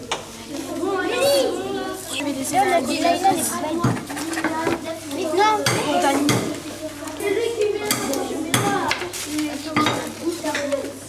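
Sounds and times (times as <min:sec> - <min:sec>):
children chattering: 0:00.0 - 0:11.0
dishes and utensils clattering: 0:07.8 - 0:10.8.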